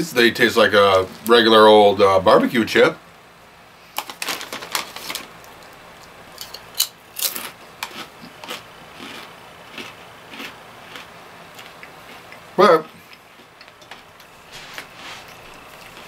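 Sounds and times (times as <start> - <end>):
potato chip crunching: 4.0 - 16.0.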